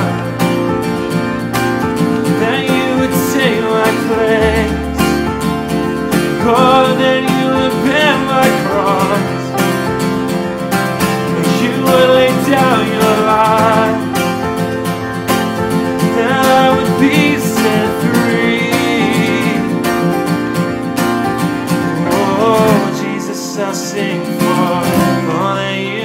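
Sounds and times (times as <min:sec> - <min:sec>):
man singing: 0:00.0 - 0:00.8, 0:02.2 - 0:09.8, 0:11.2 - 0:14.6, 0:15.9 - 0:20.3, 0:21.8 - 0:26.0
acoustic guitar strumming: 0:00.0 - 0:26.0.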